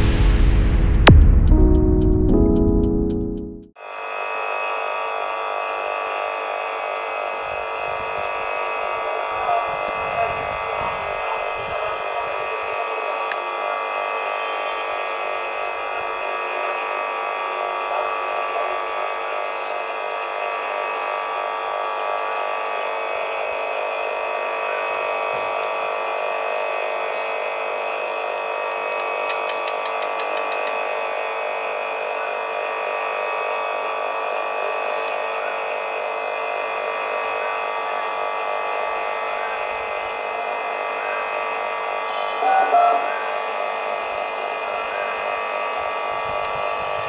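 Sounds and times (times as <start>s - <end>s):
chorus of calling animals: 42.4s - 43.4s.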